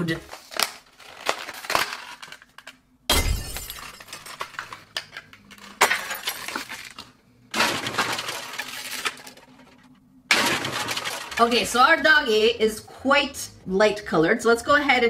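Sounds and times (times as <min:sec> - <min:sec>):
plastic bag crinkling: 0:00.0 - 0:02.8, 0:04.0 - 0:09.9.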